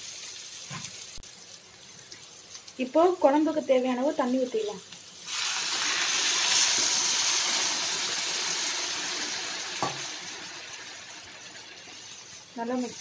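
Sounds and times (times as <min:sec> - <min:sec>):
water pouring into pan: 0:04.6 - 0:13.0.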